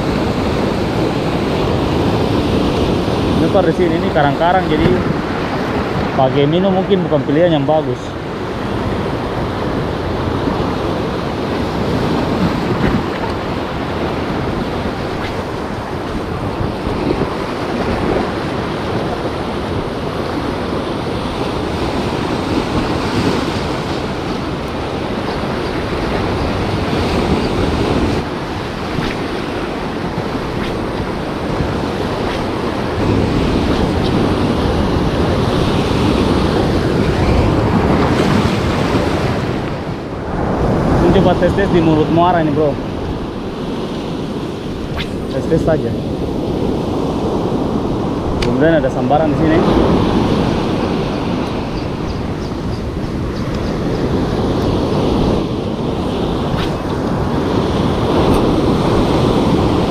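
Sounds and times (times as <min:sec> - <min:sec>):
surf breaking over rocks: 0:00.0 - 0:06.5, 0:20.5 - 0:39.8.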